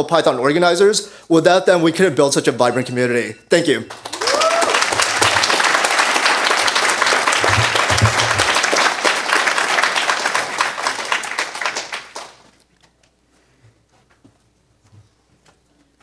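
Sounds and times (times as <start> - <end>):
audience applauding: 3.9 - 12.6.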